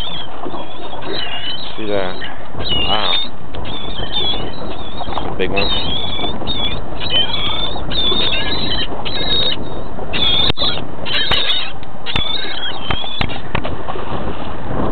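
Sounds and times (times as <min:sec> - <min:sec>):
high wavering squeals: 0:00.0 - 0:13.4
boat noise: 0:00.0 - 0:14.9
wind rushing: 0:02.5 - 0:11.1, 0:12.8 - 0:14.9.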